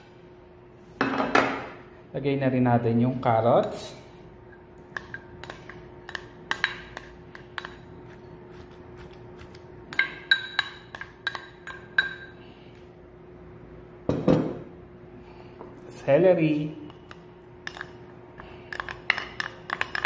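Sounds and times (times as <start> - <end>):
faint steady hum: 0.0 - 20.0.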